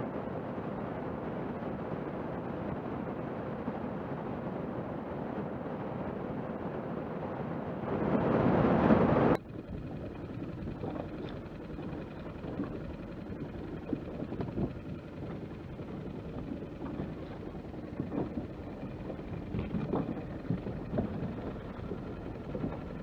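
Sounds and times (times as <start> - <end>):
boat rushing through water: 0.0 - 23.0
outboard engine: 0.0 - 23.0
faint knocks of drifting boat: 9.4 - 23.0.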